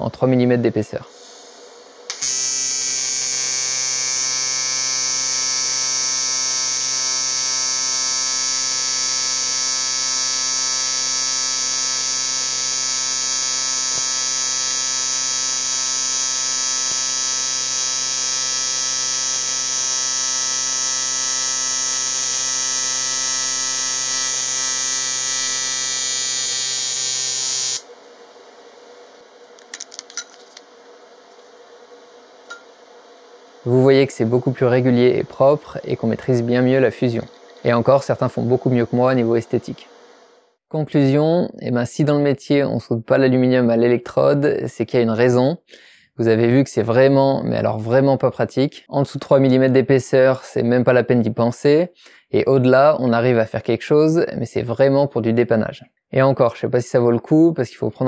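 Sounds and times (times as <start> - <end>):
welding arc buzzing: 1.1 - 40.6.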